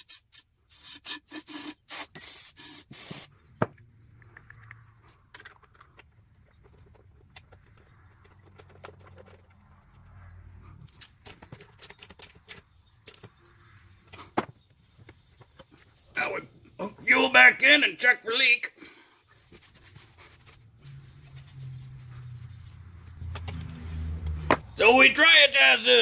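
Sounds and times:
aerosol spray hissing: 0:00.7 - 0:03.3
faint handling clicks and scrapes: 0:02.9 - 0:16.8, 0:19.0 - 0:24.3.

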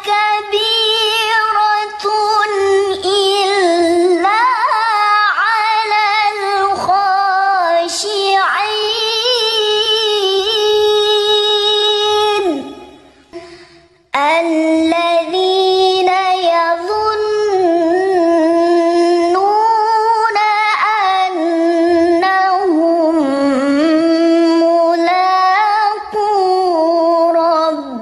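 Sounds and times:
child reciting melodically: 0:00.0 - 0:13.0, 0:14.1 - 0:28.0
breath: 0:13.1 - 0:14.1.

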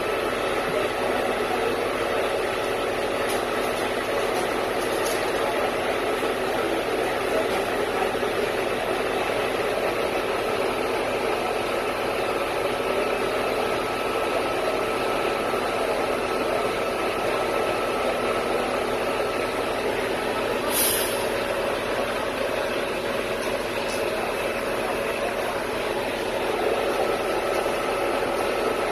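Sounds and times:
mixer truck mechanical drone: 0:00.0 - 0:28.9
brief hiss: 0:20.7 - 0:21.3.

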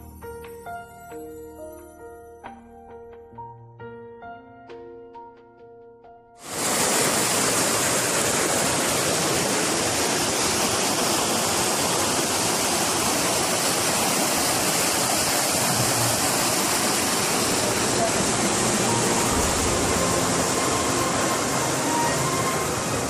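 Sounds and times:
water rushing: 0:06.4 - 0:23.0.

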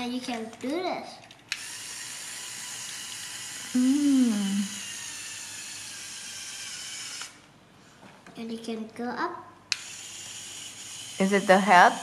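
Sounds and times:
hum gliding down in pitch: 0:03.8 - 0:04.7.

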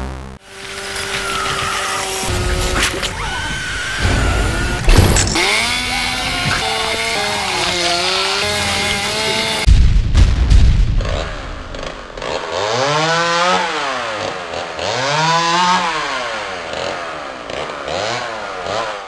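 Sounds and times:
chainsaw revving: 0:00.4 - 0:09.7, 0:11.1 - 0:19.0
sharp hits: 0:02.1 - 0:13.7
heavy boom: 0:03.8 - 0:07.0, 0:09.6 - 0:12.4.

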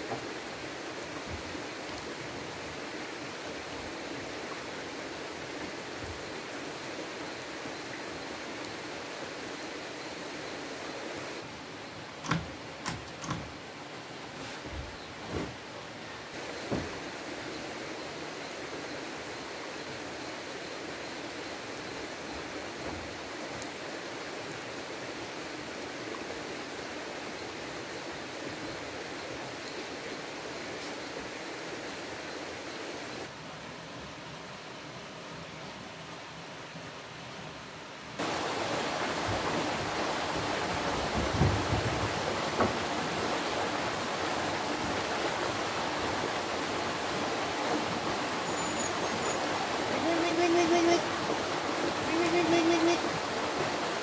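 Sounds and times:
stream water rushing: 0:00.0 - 0:54.0.

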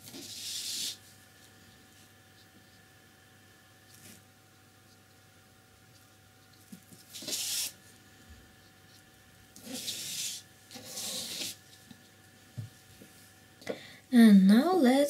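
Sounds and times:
paintbrush scratching across paper: 0:00.0 - 0:01.1, 0:06.0 - 0:07.8, 0:08.7 - 0:11.6.

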